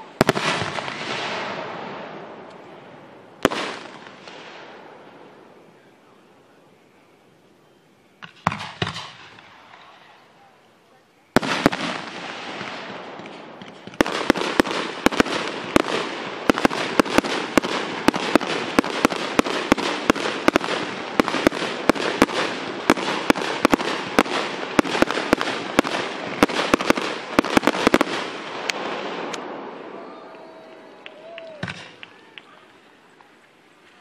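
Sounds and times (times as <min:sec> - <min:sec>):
fireworks burst: 0:00.0 - 0:02.5, 0:03.4 - 0:05.4, 0:11.3 - 0:30.0
fireworks cracks and pops: 0:11.4 - 0:29.5, 0:30.8 - 0:34.0.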